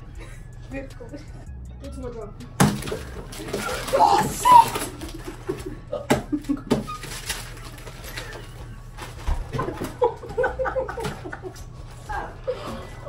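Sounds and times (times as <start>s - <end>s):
papers and envelopes rustling: 2.9s - 13.0s
teenagers laughing: 3.5s - 7.0s, 9.5s - 13.0s.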